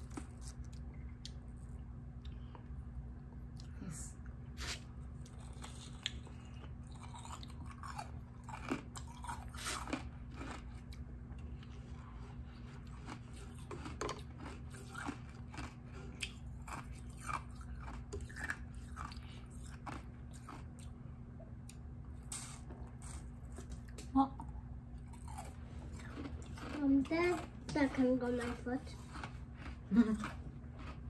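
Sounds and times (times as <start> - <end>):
chewing crunching ice: 0.0 - 1.4, 5.2 - 21.0, 25.0 - 31.0
faint low hum: 0.0 - 31.0.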